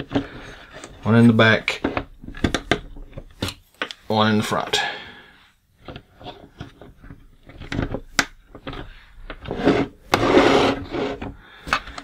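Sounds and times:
hard plastic clicks and knocks: 1.8s - 4.0s
plastic toy scraping on table: 8.6s - 11.4s.

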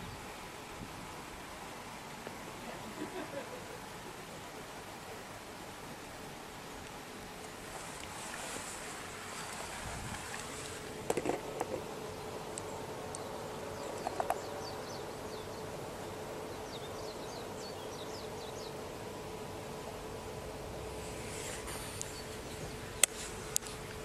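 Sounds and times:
faint even hum: 0.0s - 24.0s
outdoor background hiss: 0.0s - 24.0s
small bird chirping: 21.8s - 23.1s.

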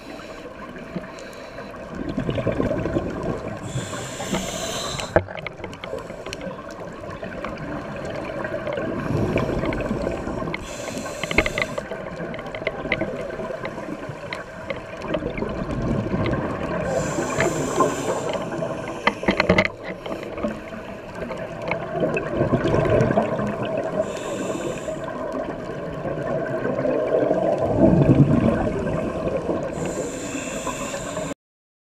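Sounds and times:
gurgle of exhaled bubbles: 1.8s - 31.3s
regulator inhalation hiss: 3.6s - 5.2s, 9.0s - 12.0s, 16.9s - 19.6s, 24.0s - 25.2s, 29.7s - 31.4s
small clicks: 9.6s - 15.4s.

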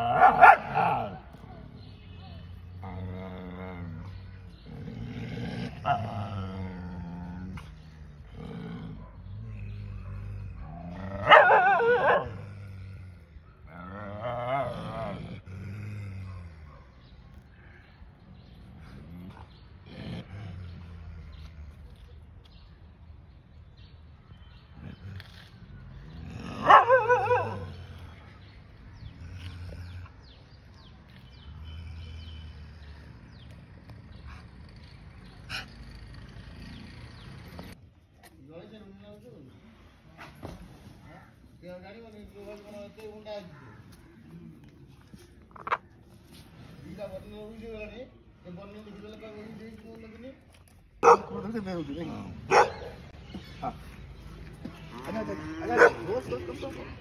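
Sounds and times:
dog bark-snarl: 0.0s - 1.2s, 8.9s - 12.6s, 26.4s - 27.9s, 51.0s - 51.4s, 52.5s - 53.0s, 55.6s - 56.1s
dogs growling: 0.0s - 22.9s, 23.7s - 37.8s, 42.2s - 57.0s.

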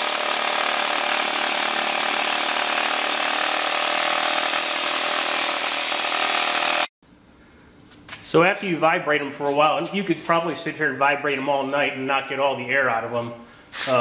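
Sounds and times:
circular saw running: 0.0s - 6.9s.

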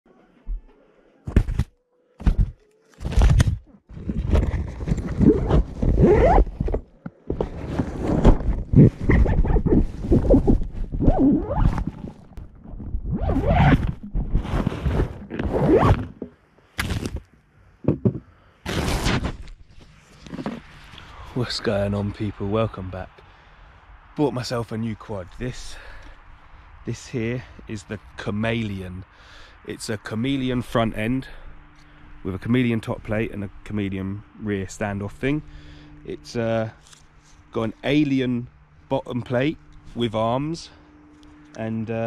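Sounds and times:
rustling fabric: 2.8s - 16.1s
zipper: 3.0s - 6.8s, 7.4s - 12.2s, 13.1s - 16.2s.

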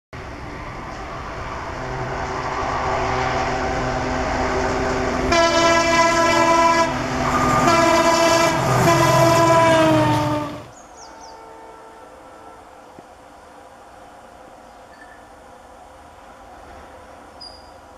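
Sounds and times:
diesel locomotive engine and wheels: 0.2s - 17.9s
locomotive horn blasts: 5.3s - 12.8s.

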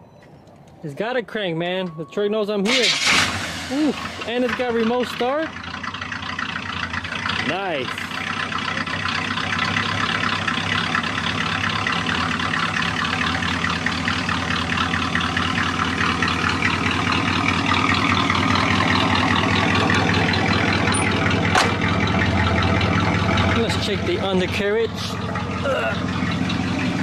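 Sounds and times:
car engine idling: 2.7s - 27.0s.

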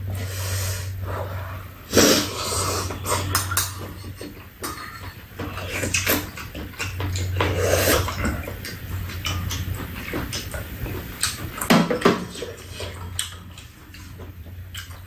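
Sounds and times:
steady low hum: 0.0s - 15.0s
slurping soup: 0.1s - 4.4s, 7.1s - 8.8s
chewing: 0.9s - 15.0s.

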